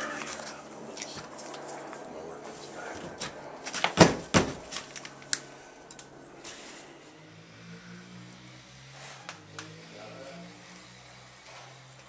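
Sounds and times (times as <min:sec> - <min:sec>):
sharp knocks and clatter: 0:03.0 - 0:05.0.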